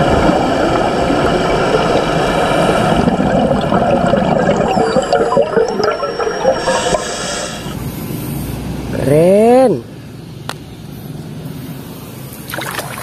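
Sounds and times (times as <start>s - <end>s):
underwater rushing and bubbling: 0.0s - 7.8s.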